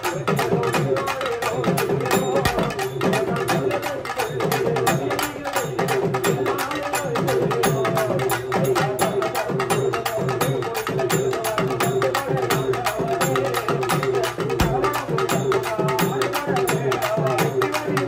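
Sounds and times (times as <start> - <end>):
struck drums beat: 0.0 - 18.0
pitch-bending rubbed drums: 14.0 - 15.7.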